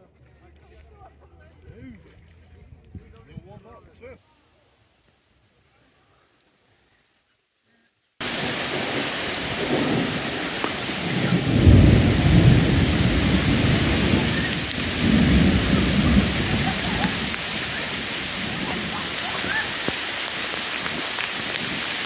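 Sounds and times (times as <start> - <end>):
heavy rain: 8.2 - 22.0
thunder rolling: 8.2 - 22.0.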